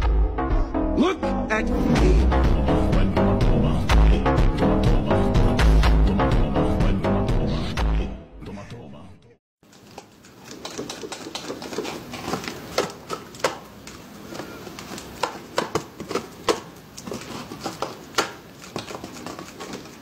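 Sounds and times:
stiff paper rustling and crinkling: 9.6 - 20.0.

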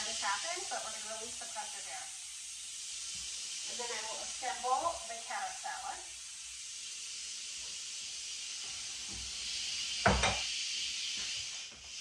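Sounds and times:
steam valve hissing: 0.0 - 12.0
brief thump: 10.0 - 10.4.

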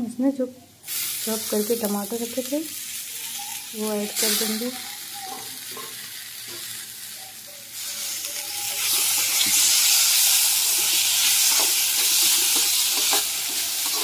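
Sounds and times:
tomatoes sizzling in hot oil: 0.8 - 14.0
steel spatula stirring: 7.8 - 14.0.

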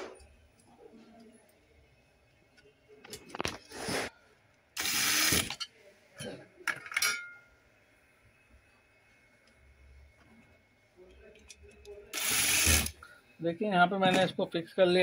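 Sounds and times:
electric screwdriver driving screws: 4.8 - 5.5, 12.2 - 13.0.

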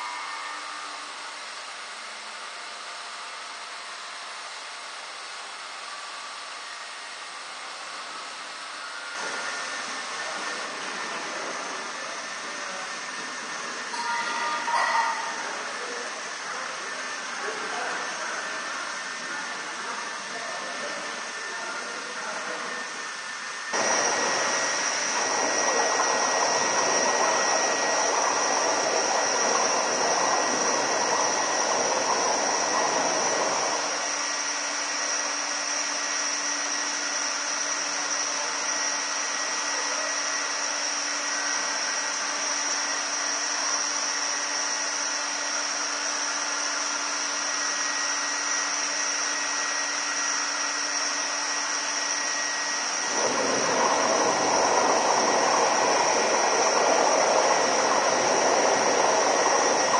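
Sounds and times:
appliances mechanical drone: 0.0 - 59.9
high whine: 8.7 - 35.4, 51.2 - 59.9.

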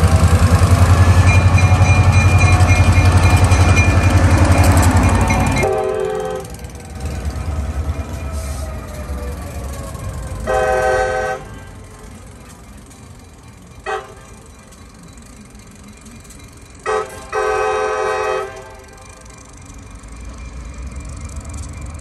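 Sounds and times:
diesel locomotive engine rumble: 0.0 - 22.0
train horn toots: 0.9 - 7.1, 10.4 - 11.9, 13.8 - 14.4, 16.8 - 19.3.

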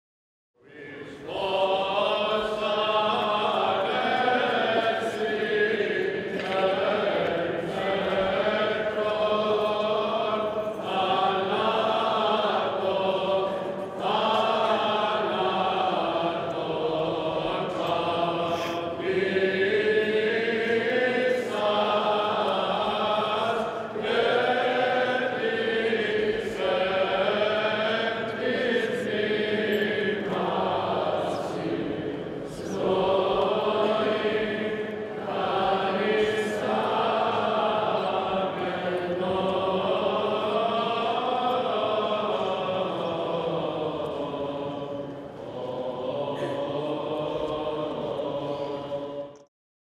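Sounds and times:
choir chanting: 0.6 - 49.5.

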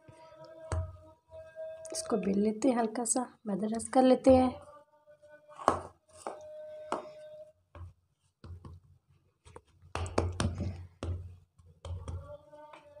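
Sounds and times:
hands patting dough: 5.6 - 12.8.

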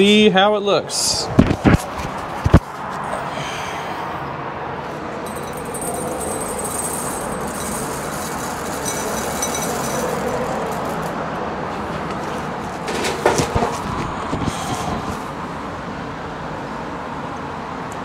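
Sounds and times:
steady background noise: 0.0 - 18.0
coffee beans rattling into bowl: 5.3 - 11.2.

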